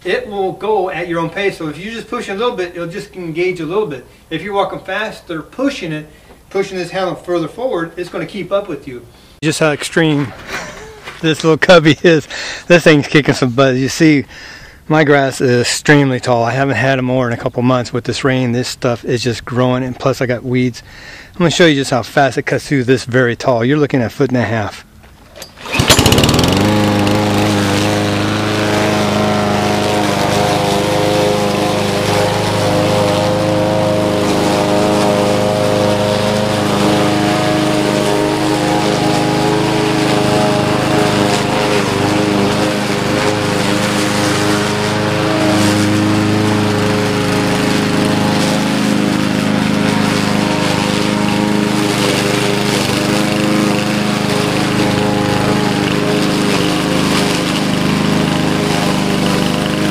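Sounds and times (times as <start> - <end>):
lawn mower engine running: 25.1 - 59.9
mower blade cutting grass: 25.2 - 59.9.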